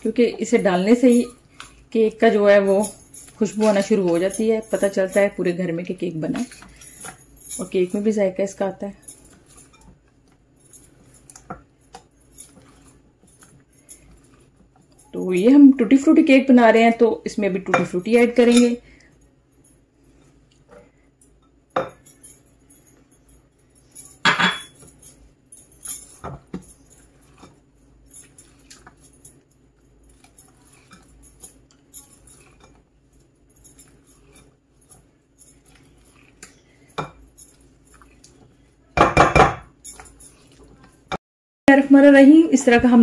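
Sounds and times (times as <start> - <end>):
spatula clinking against glass: 0.0 - 5.6, 9.2 - 10.0, 17.7 - 18.8, 23.8 - 41.2
spatula mixing batter in glass bowl: 0.0 - 18.9, 24.9 - 43.0.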